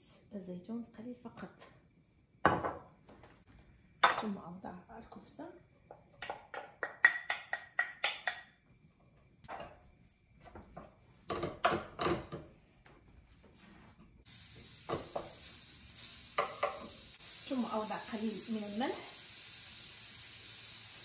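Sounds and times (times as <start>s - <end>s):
meat sizzling in oil: 14.2s - 21.0s.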